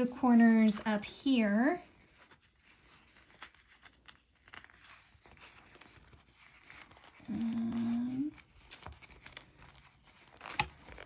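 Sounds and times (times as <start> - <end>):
vinyl bag crinkling: 0.0 - 11.0
woman humming: 7.2 - 8.4.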